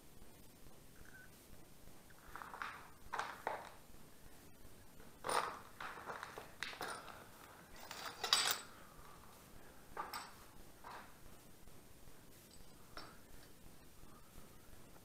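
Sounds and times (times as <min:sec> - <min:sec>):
hard objects knocking and clinking: 0:02.2 - 0:03.8, 0:05.0 - 0:08.8, 0:10.0 - 0:11.2, 0:12.5 - 0:13.6.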